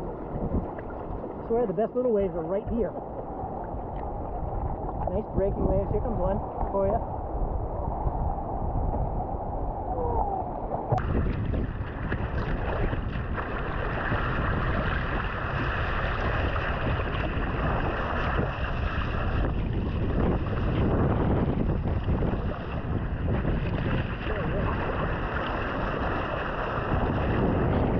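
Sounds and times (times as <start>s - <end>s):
ocean waves breaking: 0.0s - 27.9s
wind buffeting microphone: 0.0s - 27.9s.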